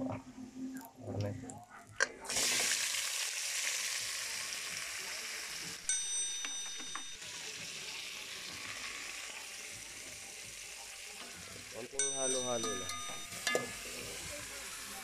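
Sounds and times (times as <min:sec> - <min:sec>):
meat sizzling in hot oil: 0:02.3 - 0:15.0.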